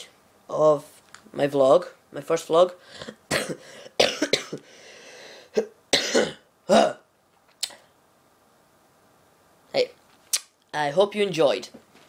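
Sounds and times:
boy coughing: 0:03.1 - 0:04.6, 0:05.5 - 0:07.0.

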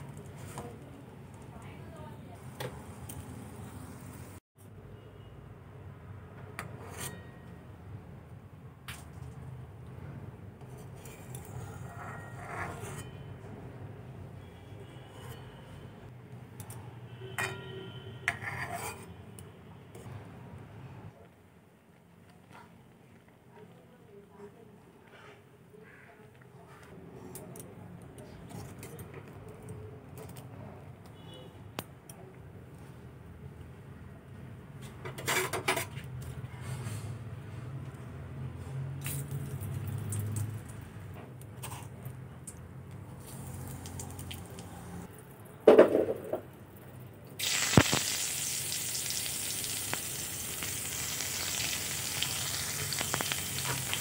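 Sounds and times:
metal spoon scraping a wok: 0:06.6 - 0:07.5, 0:10.6 - 0:13.3, 0:17.3 - 0:19.2.

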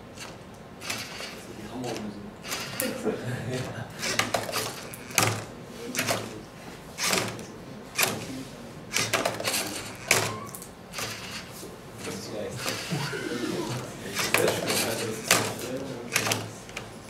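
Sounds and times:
plastic parts and cube clattering: 0:04.0 - 0:06.3, 0:09.0 - 0:12.9, 0:14.2 - 0:16.9.

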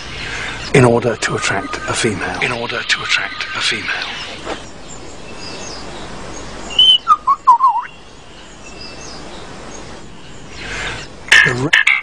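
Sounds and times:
faint distant bird calls: 0:00.0 - 0:12.0
forest ambience: 0:00.0 - 0:12.0
lyrebird whistled song: 0:05.3 - 0:09.2.

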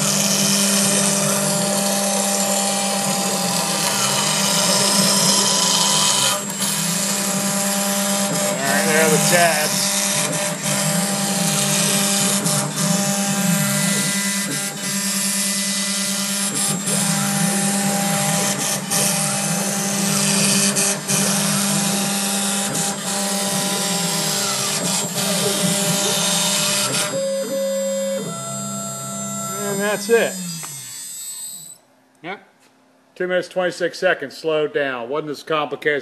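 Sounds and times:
cutter hissing through plastic: 0:00.0 - 0:28.6
machine hum: 0:00.0 - 0:31.8.

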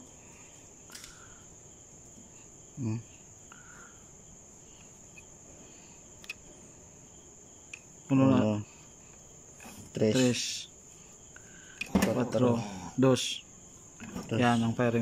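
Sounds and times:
crickets trilling: 0:00.0 - 0:15.0
man murmuring: 0:02.8 - 0:03.2.

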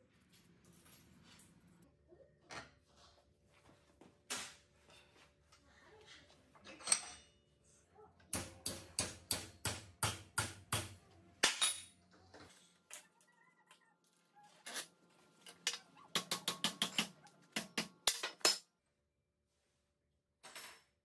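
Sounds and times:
hammer striking metal nail: 0:08.3 - 0:11.8.

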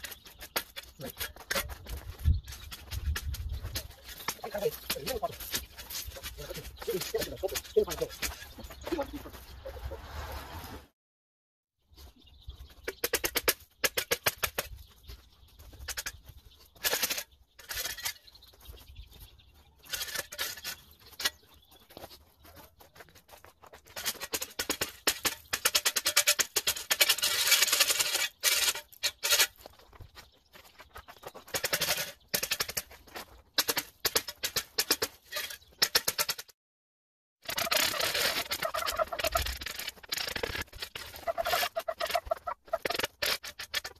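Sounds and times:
shovel scraping hard snow: 0:09.8 - 0:11.0.

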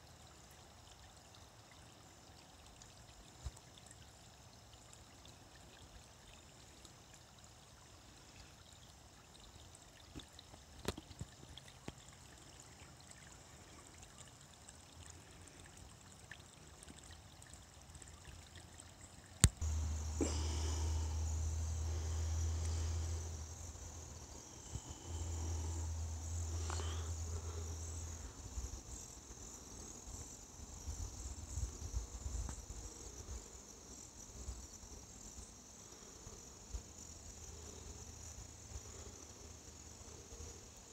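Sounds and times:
creek trickling over stones: 0:00.0 - 0:31.6
crickets chirping: 0:00.0 - 0:40.9
steady low rumble: 0:19.6 - 0:28.6.

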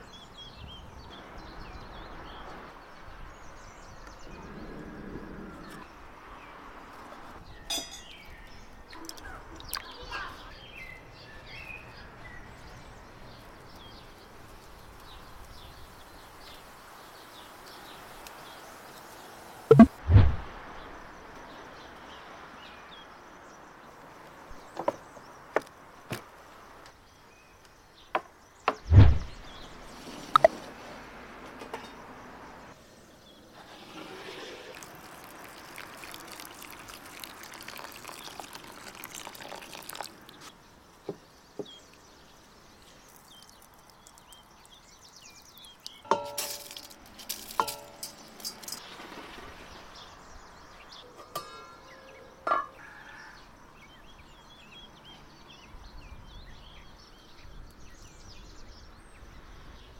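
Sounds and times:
metal pots and lids clinking: 0:07.7 - 0:08.2, 0:46.0 - 0:48.8, 0:51.2 - 0:52.8
heavy thump: 0:28.9 - 0:29.4
water pouring onto rice: 0:33.6 - 0:40.5, 0:43.0 - 0:49.7.

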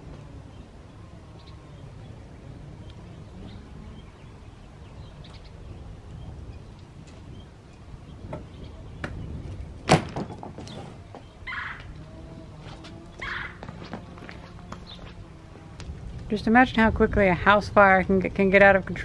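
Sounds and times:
panel dropped with loud slap: 0:09.8 - 0:10.5.

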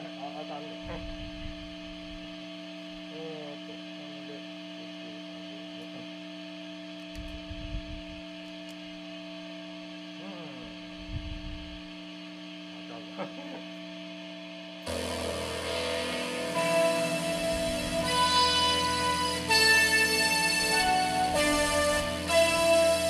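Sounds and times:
guitar amplifier hum: 0:00.0 - 0:23.0
electric guitar music: 0:14.9 - 0:23.0.

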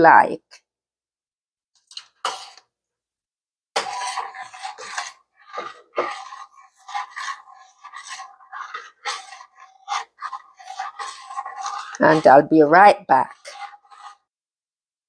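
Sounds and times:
metal spoon scraping a saucepan: 0:01.9 - 0:02.6, 0:03.8 - 0:14.4.

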